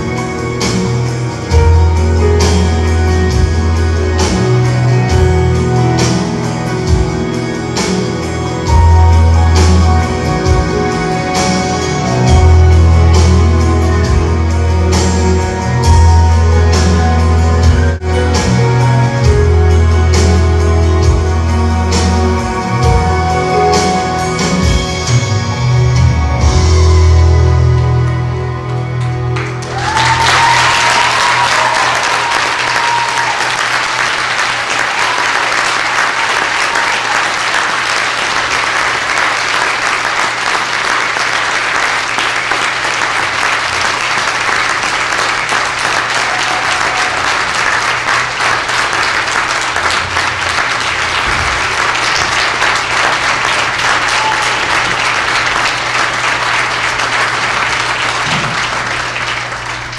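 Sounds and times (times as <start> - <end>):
music: 0.0 - 59.9
large audience applauding: 27.8 - 59.9.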